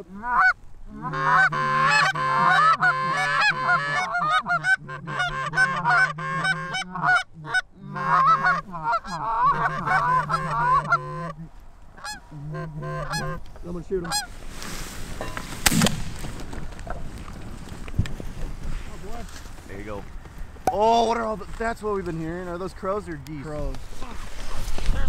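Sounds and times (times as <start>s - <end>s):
geese honking: 0.0s - 14.4s.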